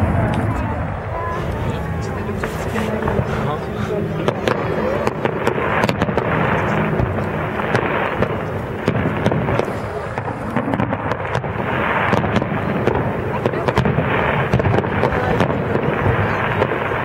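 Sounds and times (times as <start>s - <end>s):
firework shells bursting: 4.2s - 17.0s.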